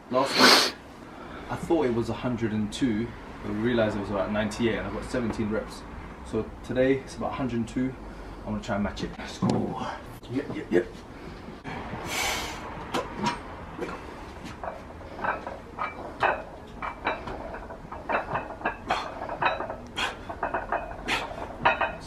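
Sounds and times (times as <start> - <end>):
weight plates clinking: 13.0 - 22.0.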